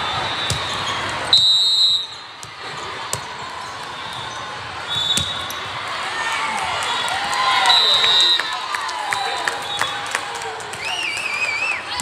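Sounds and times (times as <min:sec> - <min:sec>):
referee's whistle: 0:00.0 - 0:02.2, 0:04.0 - 0:05.6, 0:07.6 - 0:08.5
echoing din of sports hall: 0:00.0 - 0:12.0.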